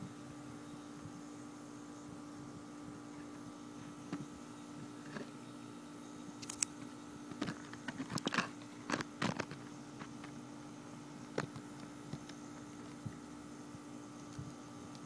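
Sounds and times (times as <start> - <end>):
faint steady hum: 0.0 - 15.0
crackling crunching clicks: 6.4 - 10.4, 11.3 - 13.0, 14.2 - 15.0.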